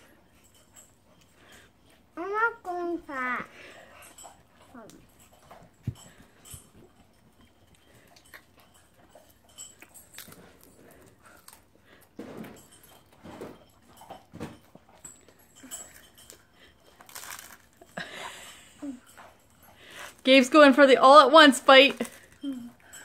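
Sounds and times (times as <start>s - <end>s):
children chewing crackers: 0.0s - 23.0s.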